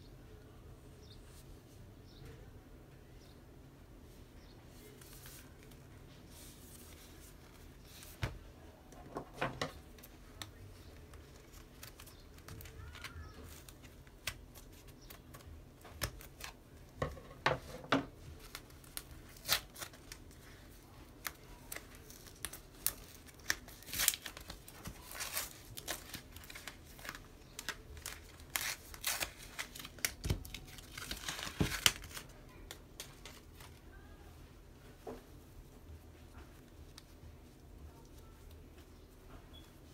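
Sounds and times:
soft fabric handling: 4.0 - 15.3, 32.1 - 39.9
cardboard crinkling and tearing: 18.3 - 32.4.

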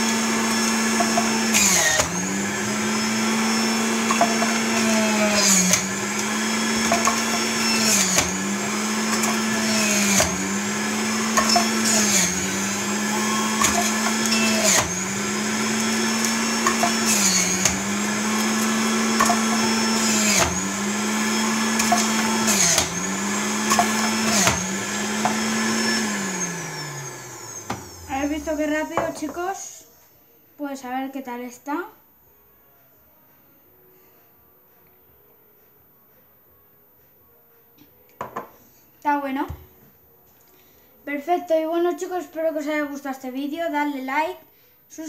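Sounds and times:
juicer motor running: 0.0 - 28.6.

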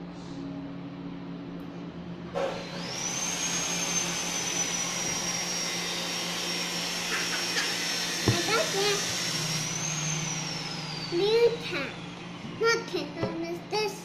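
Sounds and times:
appliance motor whining: 2.4 - 13.3.

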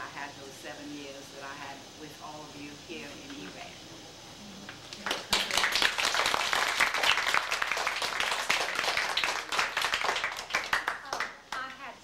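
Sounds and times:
audience applauding: 5.0 - 11.8.

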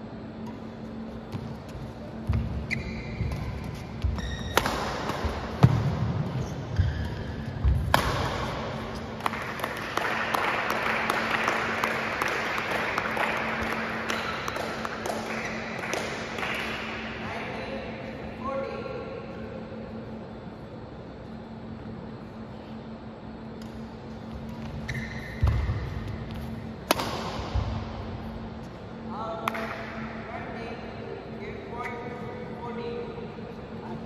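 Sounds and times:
shoe squeaks: 2.6 - 4.6, 6.4 - 7.6, 24.7 - 25.5
racket hitting shuttlecock: 3.2 - 9.9, 26.8 - 27.8
crowd clapping and cheering: 9.2 - 16.9.

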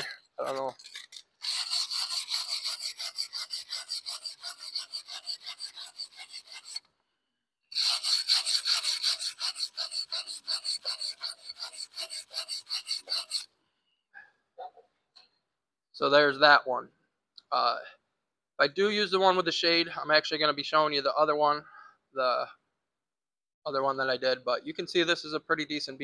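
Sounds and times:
wire brush scrubbing steel plate: 0.0 - 6.9, 7.7 - 13.5.

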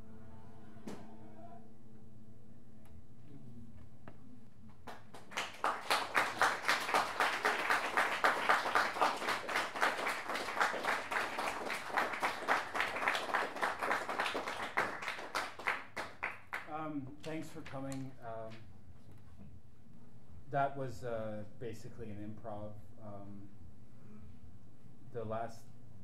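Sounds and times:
audience applauding: 4.8 - 16.7.

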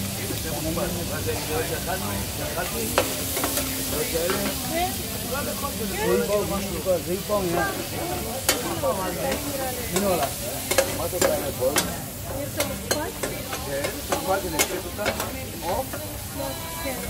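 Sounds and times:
sizzle of frying: 0.0 - 17.0
metal spatulas scraping steel pan: 2.6 - 4.7, 8.4 - 16.1.

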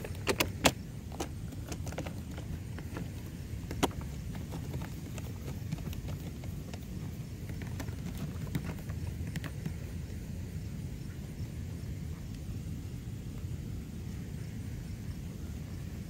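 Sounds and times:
steady low rumble: 0.0 - 16.0.

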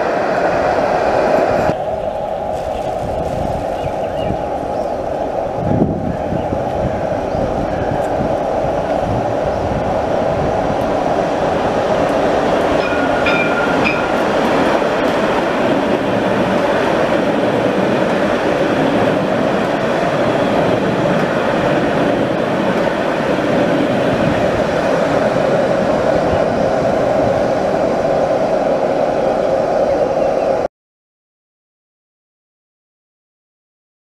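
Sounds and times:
trams rolling past: 0.0 - 30.7
high-pitched tone: 12.8 - 14.3.

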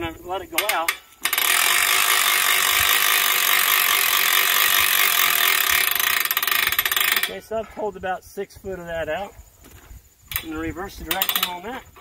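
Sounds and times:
winch ratchet clicking: 0.6 - 7.4, 10.3 - 11.7.

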